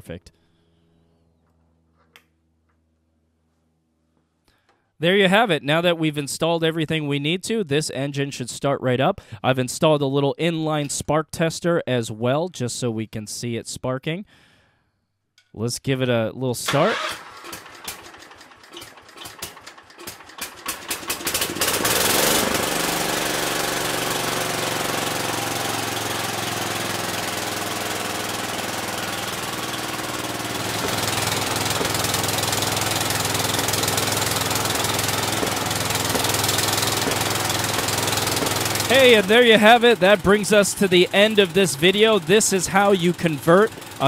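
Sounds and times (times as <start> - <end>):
engine cranking and running: 16.6 - 44.0.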